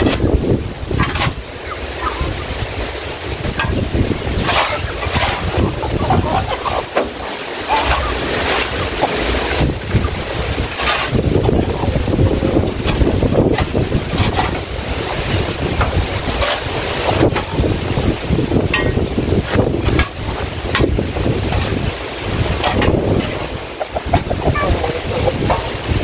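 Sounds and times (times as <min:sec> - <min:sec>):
wind rumble on microphone: 0:00.0 - 0:26.0
metal shovel scraping concrete: 0:04.4 - 0:09.7, 0:10.7 - 0:12.2, 0:16.3 - 0:17.5.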